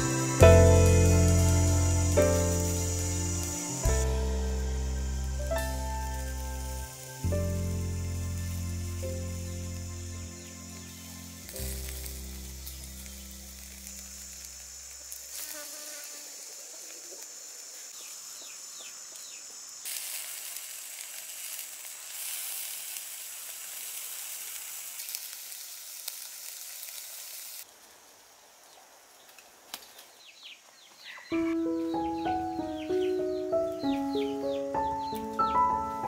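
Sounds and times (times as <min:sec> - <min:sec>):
skewers sizzling on a grill: 0:00.0 - 0:30.8
small crackles: 0:10.8 - 0:18.4, 0:19.1 - 0:31.2.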